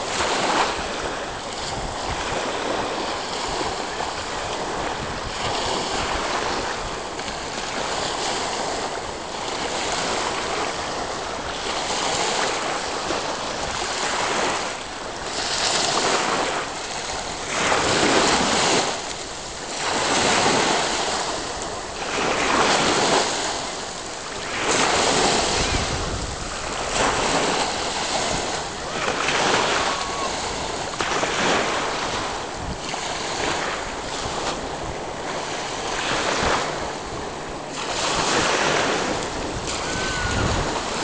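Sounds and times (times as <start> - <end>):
small waves washing on beach: 0.0 - 41.0
wind buffeting microphone: 0.0 - 41.0.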